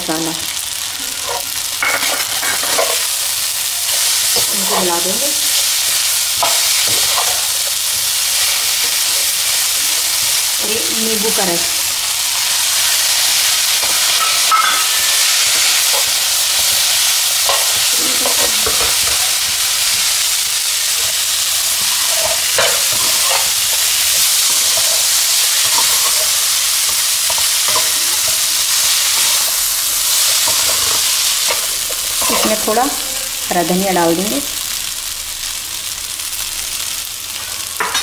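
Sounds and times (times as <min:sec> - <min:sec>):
food sizzling in a frying pan: 0:00.0 - 0:38.0.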